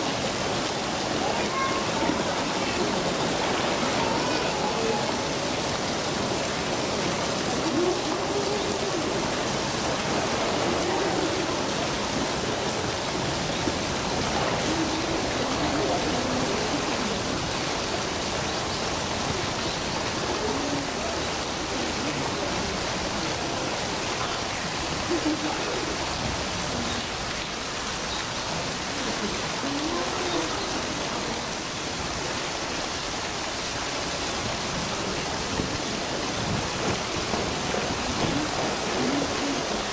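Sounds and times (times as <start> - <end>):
faint voices: 0.0 - 39.9
running water rushing: 0.0 - 39.9.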